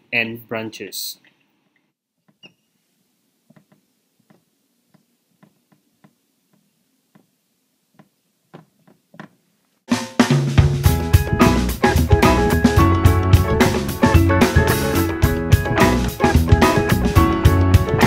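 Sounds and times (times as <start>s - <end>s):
music with drums: 9.9s - 18.0s.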